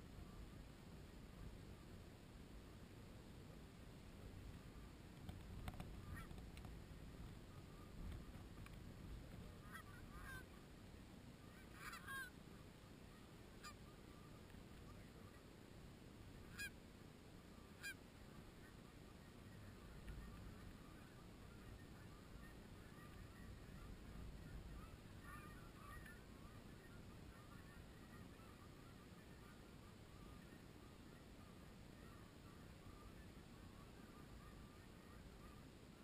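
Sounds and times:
wind rumble on microphone: 0.0s - 15.6s
low steady rumble: 0.0s - 36.0s
distant geese honking: 4.5s - 15.6s, 16.3s - 36.0s.

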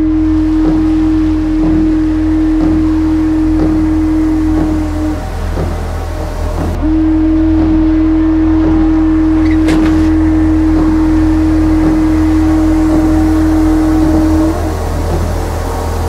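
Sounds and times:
deep bass drone: 0.0s - 16.0s
low held note: 6.8s - 16.0s
short musical hit: 9.4s - 10.5s.

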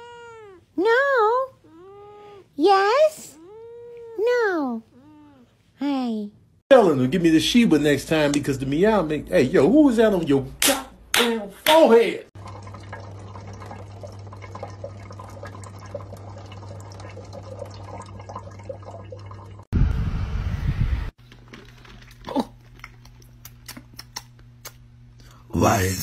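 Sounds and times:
cat lapping water: 12.4s - 19.5s
loud low rumble: 19.7s - 21.1s.

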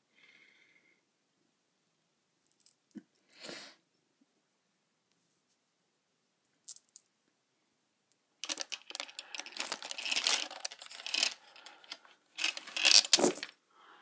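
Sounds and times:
bead necklace rattling and clicking: 8.4s - 13.6s.

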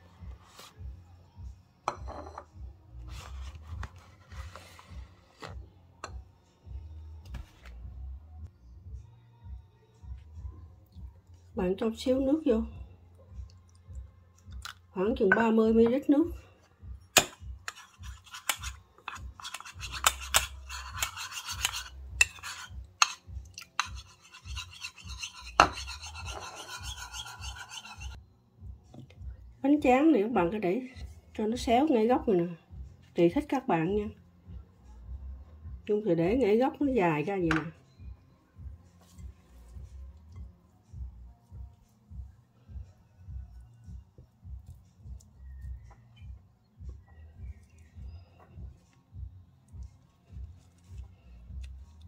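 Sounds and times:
spoon clinking on ceramic bowl: 1.9s - 2.5s
metal spoon stirring in bowl: 17.1s - 28.2s.

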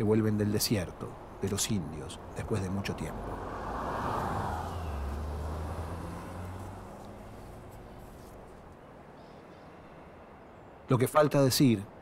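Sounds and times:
faint outdoor background noise: 0.0s - 12.0s
vehicle engine hum: 1.1s - 8.8s.

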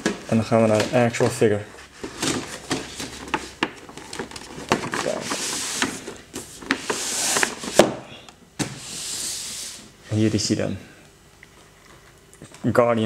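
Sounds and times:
cardboard rubbing on cardboard: 5.0s - 7.9s.

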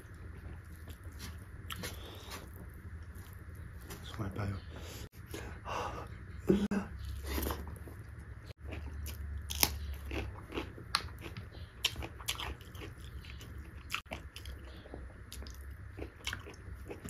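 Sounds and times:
person chewing food: 0.0s - 4.1s, 7.0s - 17.0s
low steady hum: 0.0s - 17.0s.

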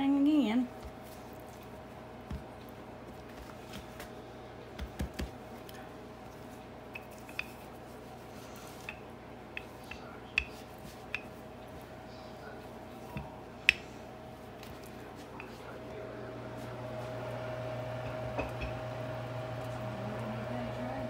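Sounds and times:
faint steady hum: 0.0s - 21.0s
dough patted by hand: 4.7s - 5.8s.

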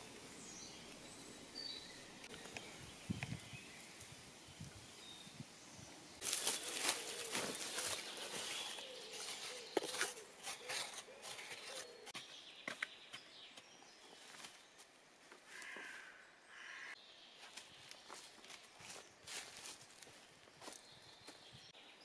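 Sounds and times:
dry leaves rustling: 6.2s - 12.1s, 17.4s - 20.8s
soil scraping: 6.2s - 12.3s.

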